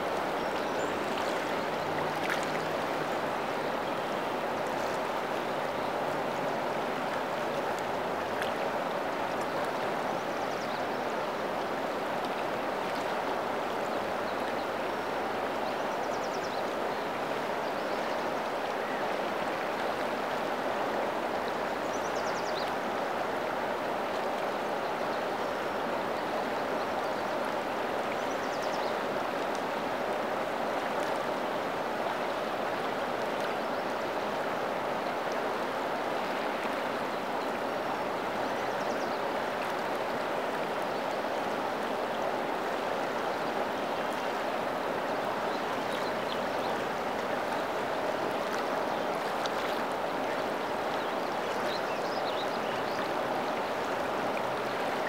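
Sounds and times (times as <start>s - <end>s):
river rushing: 0.0s - 55.0s.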